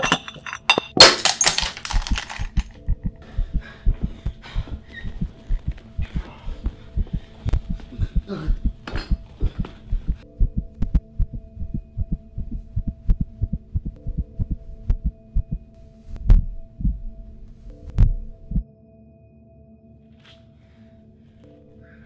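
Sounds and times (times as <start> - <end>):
heartbeat-like low pulsing: 2.6 - 18.6.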